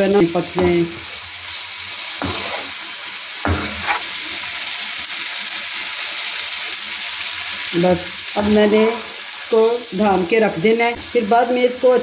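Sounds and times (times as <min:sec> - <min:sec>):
meat sizzling in frying pan: 0:00.0 - 0:12.0
metal spoon knocking pan: 0:00.5 - 0:01.0.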